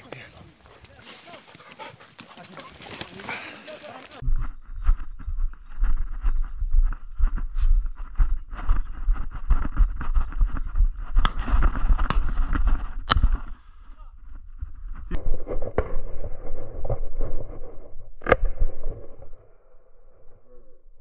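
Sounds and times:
footsteps crunching on stony ground: 0:00.0 - 0:12.8
rustle of gear: 0:00.8 - 0:04.2.

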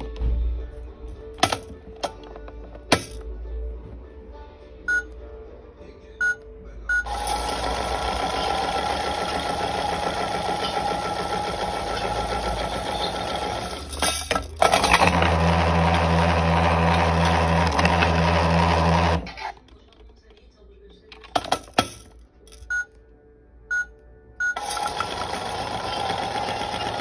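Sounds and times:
toy control buttons beeping: 0:04.9 - 0:05.1, 0:06.2 - 0:07.5, 0:22.6 - 0:22.9, 0:23.7 - 0:24.8
plastic beads rattling: 0:13.6 - 0:15.4.

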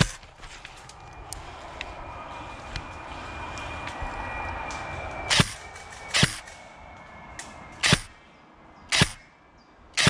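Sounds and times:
airsoft gun shots: 0:06.2 - 0:06.4, 0:07.8 - 0:08.1, 0:08.9 - 0:09.2.

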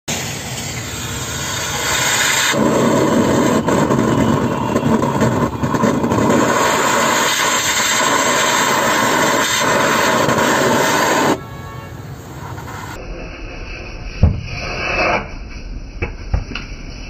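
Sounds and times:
gas torch hissing: 0:00.1 - 0:11.4.

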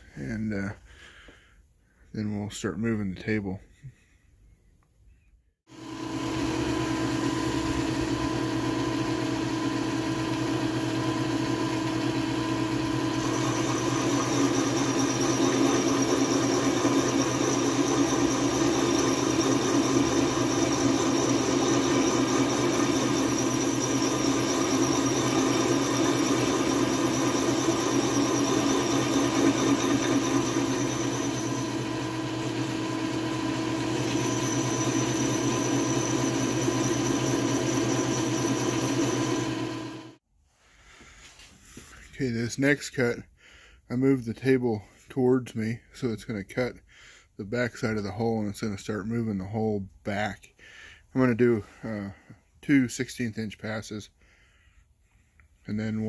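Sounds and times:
milling machine cutting metal: 0:05.8 - 0:40.2.

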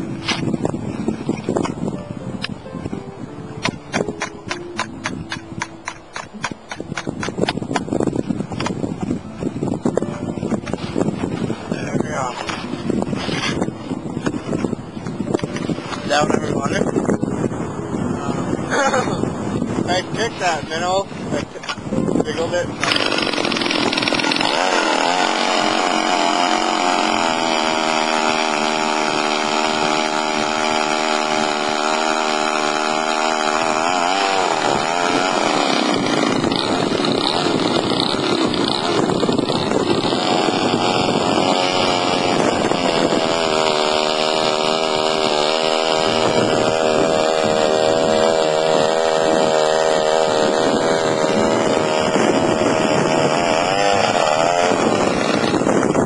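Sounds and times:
ice auger engine running: 0:22.4 - 0:56.0.

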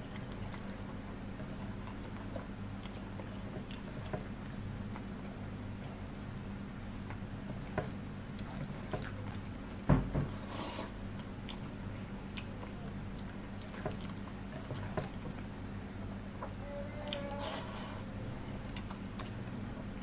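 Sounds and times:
steady low hum: 0:00.0 - 0:20.0
chewing and lip smacks: 0:00.1 - 0:05.4, 0:11.0 - 0:15.5, 0:18.6 - 0:20.0.

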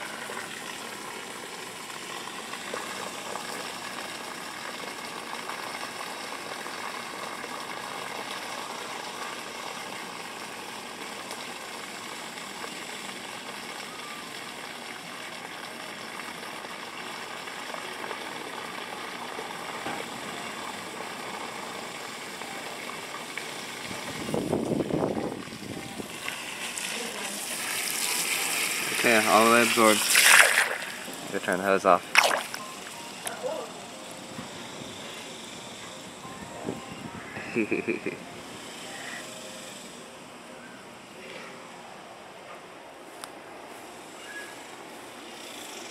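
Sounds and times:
water rushing from garden hose: 0:00.0 - 0:35.8.

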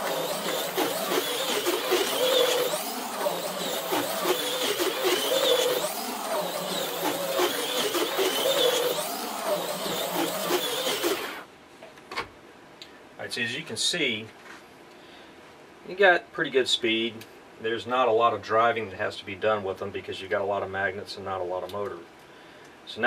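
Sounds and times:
slot car motor whining: 0:00.0 - 0:11.5.

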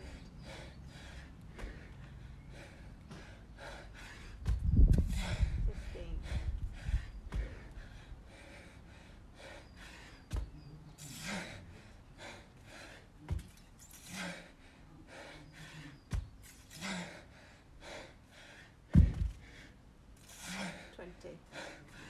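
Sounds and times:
man breathing hard: 0:00.0 - 0:22.0
dumbbell thudding on rubber mat: 0:18.9 - 0:19.4.

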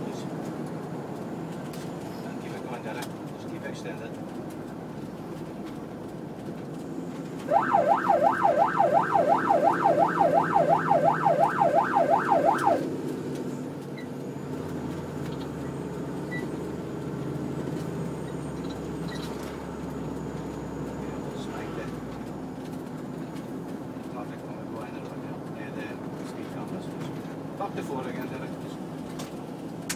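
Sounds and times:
engine and road noise: 0:00.0 - 0:29.9
siren yelping: 0:07.4 - 0:12.9.

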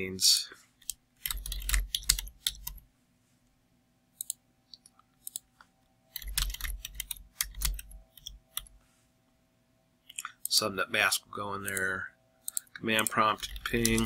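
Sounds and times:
typing on computer keyboard: 0:00.8 - 0:02.8, 0:06.1 - 0:08.7, 0:12.5 - 0:14.0.

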